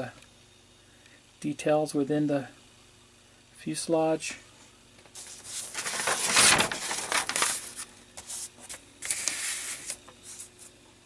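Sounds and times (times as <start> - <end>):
paper rustling and crinkling: 5.1 - 10.8.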